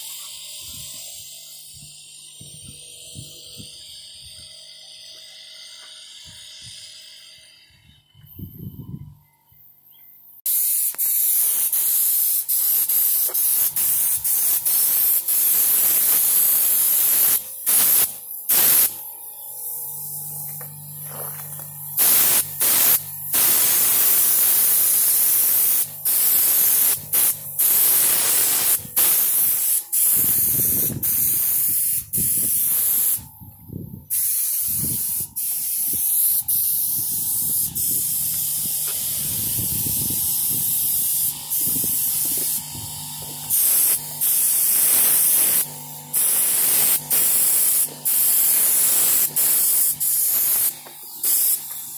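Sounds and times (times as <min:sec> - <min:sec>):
spray gun hissing: 0:10.5 - 0:33.4, 0:34.0 - 0:51.9.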